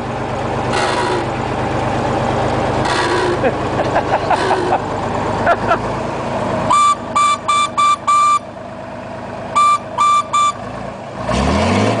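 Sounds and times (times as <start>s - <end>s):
truck engine idling and revving: 0.0s - 12.0s
truck horn short toots: 6.7s - 8.4s, 9.5s - 10.6s.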